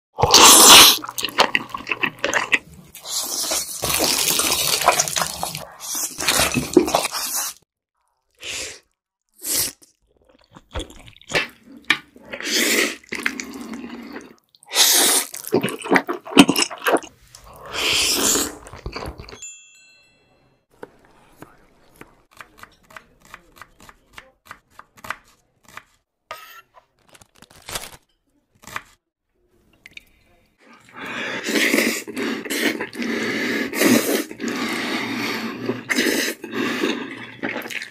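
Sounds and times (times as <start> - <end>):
people slurping noodles: 0.2 - 7.6, 8.3 - 19.3, 30.6 - 37.9.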